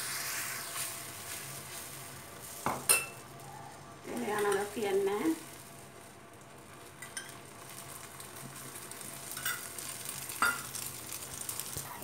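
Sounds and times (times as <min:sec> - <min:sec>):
egg sizzling in oil: 0:00.0 - 0:12.0
spoon clinking: 0:02.8 - 0:03.2.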